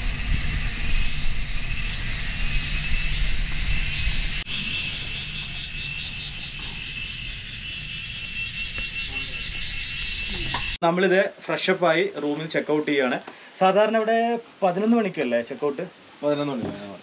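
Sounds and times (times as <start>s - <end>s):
wind on microphone: 0.0s - 9.6s
insect buzz: 0.0s - 10.8s.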